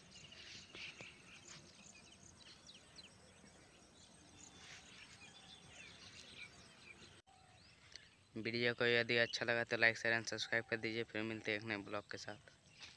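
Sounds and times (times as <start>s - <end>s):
bird chirps and calls: 0.0s - 8.3s.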